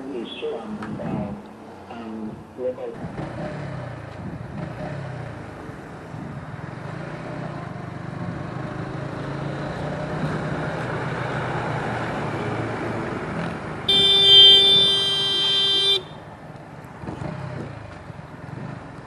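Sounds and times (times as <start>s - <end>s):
passing traffic: 0.0s - 19.0s
road noise: 0.0s - 19.0s
wind noise: 0.7s - 1.4s, 4.1s - 4.7s
motorcycle engine running: 13.9s - 19.0s.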